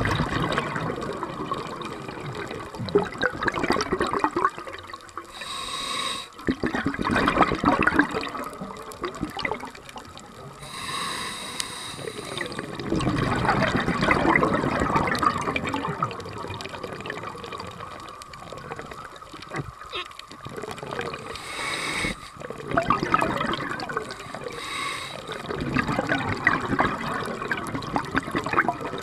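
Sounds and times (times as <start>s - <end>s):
gurgling exhaled bubbles: 0.0s - 29.0s
regulator inhalation hiss: 5.3s - 6.4s, 10.6s - 12.7s, 21.1s - 22.5s, 24.1s - 25.5s.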